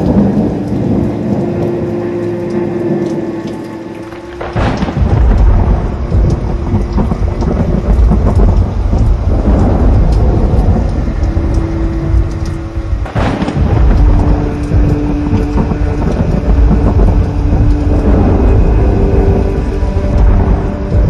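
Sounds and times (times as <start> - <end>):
rain: 0.0 - 21.0
thunder rumbling: 0.0 - 21.0
thunder crack: 4.1 - 21.0.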